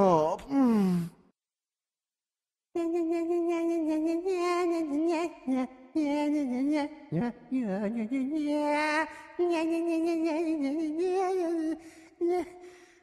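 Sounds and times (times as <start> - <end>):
person singing wordless tune: 2.8 - 13.0.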